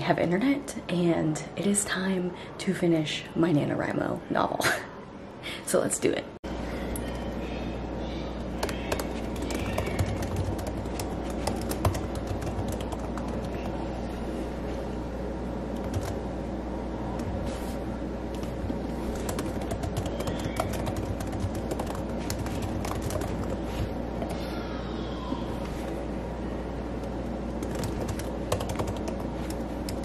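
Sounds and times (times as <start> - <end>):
steady low hum: 0.0 - 30.0
laptop keyboard typing: 8.6 - 13.8, 15.8 - 16.2, 19.1 - 24.4, 27.6 - 30.0.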